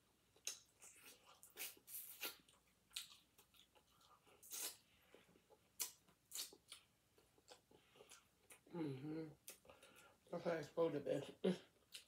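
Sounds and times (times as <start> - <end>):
wet mouth smacks while eating: 5.8 - 6.8.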